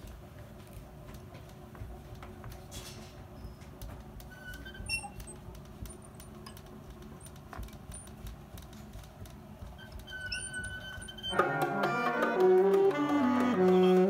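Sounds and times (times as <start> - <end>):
low room rumble: 0.0 - 14.0
door squeaks: 3.4 - 6.1, 9.8 - 14.0.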